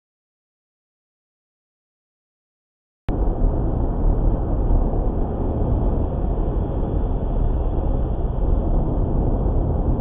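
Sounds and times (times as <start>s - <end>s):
car road and engine noise: 3.1s - 10.0s.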